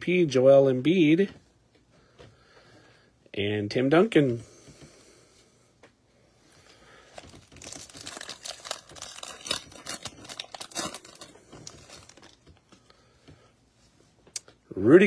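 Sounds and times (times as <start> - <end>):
plastic wrapper crinkling: 7.1 - 12.8.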